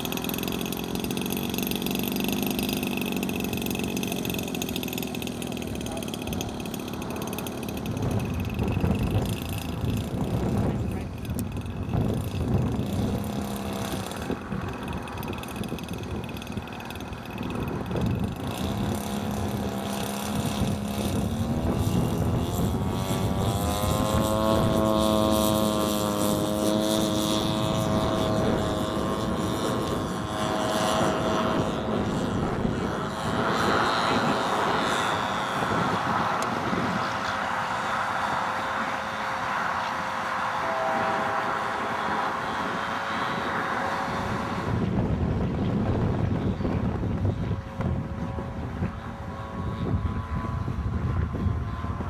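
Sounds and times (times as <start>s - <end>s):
model plane engine and propeller: 0.0s - 52.0s.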